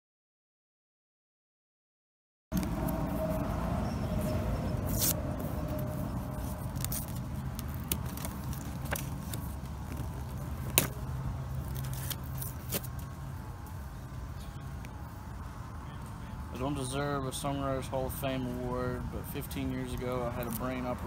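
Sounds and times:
steady low rumble: 2.5s - 21.0s
hands picking at box tape: 4.8s - 5.5s, 6.1s - 13.2s.

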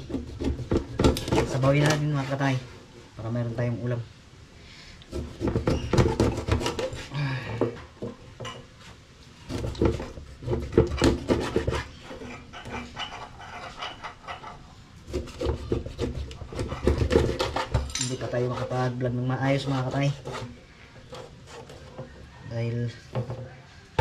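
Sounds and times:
knife scraping fish: 5.1s - 7.1s, 9.4s - 22.0s.

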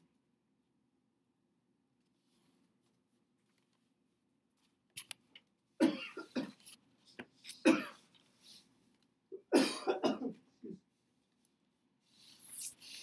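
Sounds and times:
person coughing: 5.8s - 6.7s, 7.5s - 8.1s, 9.4s - 10.8s.

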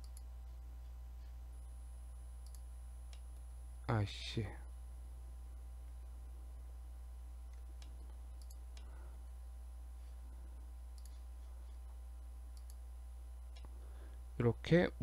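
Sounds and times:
steady low hum: 0.0s - 15.0s
mouse and keyboard clicks: 11.0s - 11.2s.

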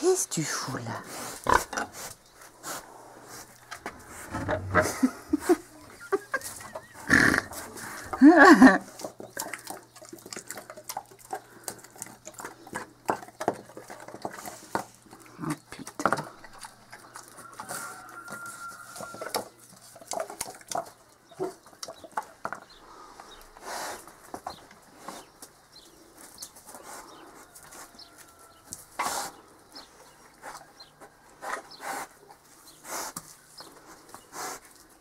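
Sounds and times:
pig snuffling and rooting: 0.4s - 35.0s
pig grunting: 6.8s - 8.2s.

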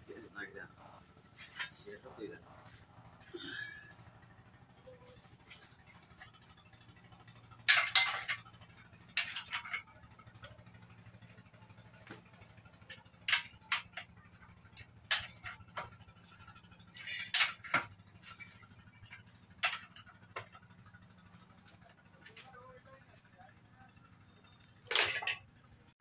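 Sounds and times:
metal tools clinking and clattering: 7.3s - 22.6s, 24.8s - 25.6s.

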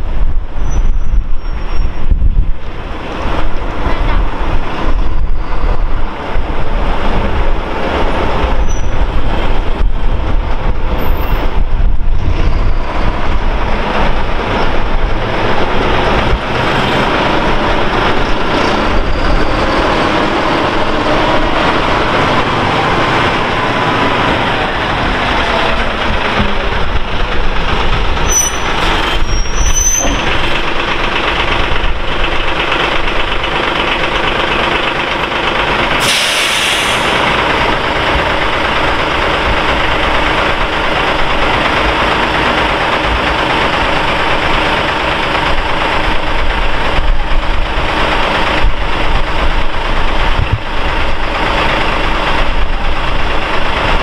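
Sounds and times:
truck diesel engine running: 2.1s - 54.0s
high squeaks: 8.6s - 9.1s, 28.2s - 30.8s.

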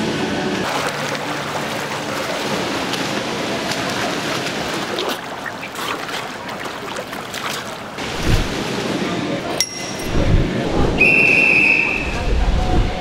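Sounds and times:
swimmer splashing in pool water: 0.6s - 8.8s.

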